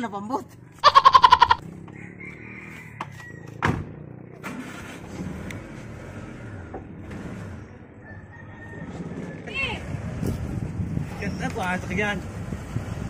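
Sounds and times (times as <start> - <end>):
car driving on road: 0.2 - 13.0
sharp thump: 3.6 - 4.0.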